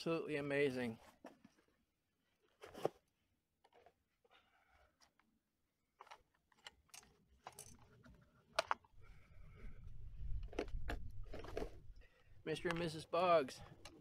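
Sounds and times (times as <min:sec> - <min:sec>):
clicks and rustles of handling box: 0:00.9 - 0:04.2, 0:04.9 - 0:09.0, 0:10.3 - 0:14.0.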